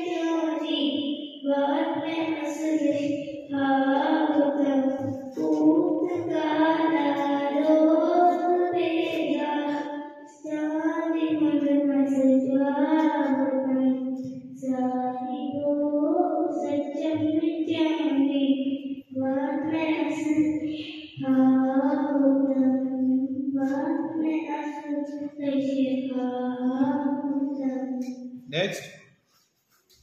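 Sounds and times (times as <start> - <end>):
girl singing into microphone: 0.0 - 28.1.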